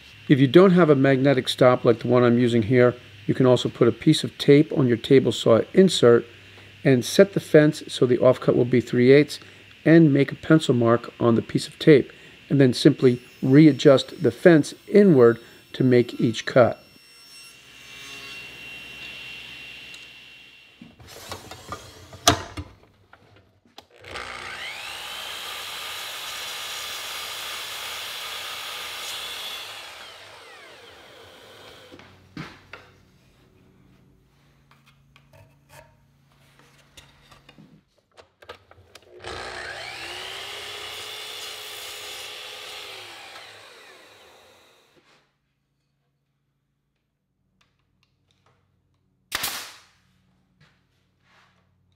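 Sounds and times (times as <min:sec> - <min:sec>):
miter saw cutting wood: 0:00.0 - 0:22.1, 0:23.9 - 0:32.0, 0:39.1 - 0:45.0
steady tool whine: 0:00.0 - 0:22.3, 0:23.9 - 0:32.2, 0:39.1 - 0:45.0.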